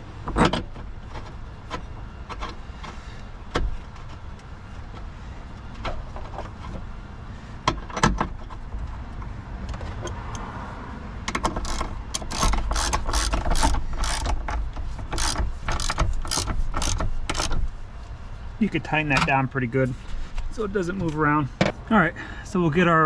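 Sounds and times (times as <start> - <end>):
hand ratchet clicking: 11.4 - 17.6.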